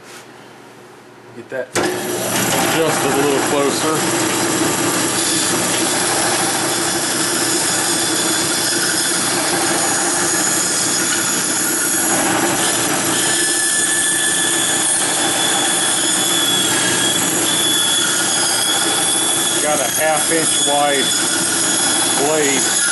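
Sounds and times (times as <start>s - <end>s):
bandsaw cutting wood: 1.8s - 22.9s.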